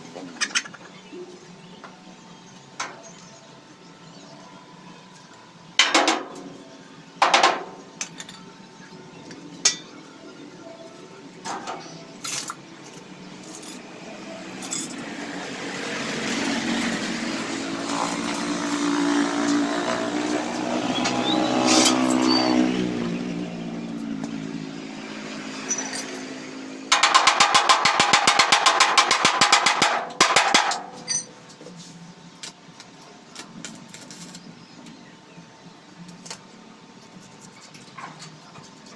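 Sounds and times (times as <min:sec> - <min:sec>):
vehicle engine passing: 0:14.0 - 0:26.9
sharp metal clinks: 0:25.6 - 0:26.3, 0:31.0 - 0:31.4.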